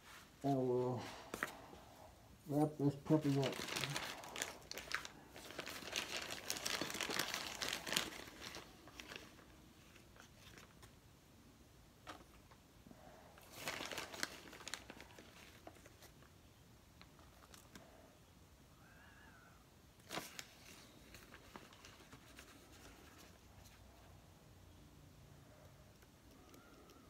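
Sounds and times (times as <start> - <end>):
plastic bag crinkling: 2.8 - 10.8, 13.4 - 16.3.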